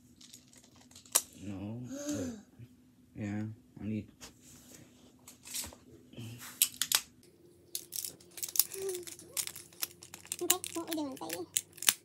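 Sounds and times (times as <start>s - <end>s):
plastic magnetic tiles clicking: 7.8s - 12.0s.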